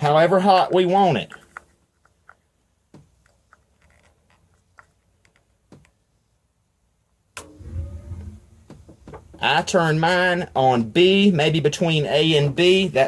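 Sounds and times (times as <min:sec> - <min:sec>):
low rumble of gas burner: 0:07.4 - 0:09.4.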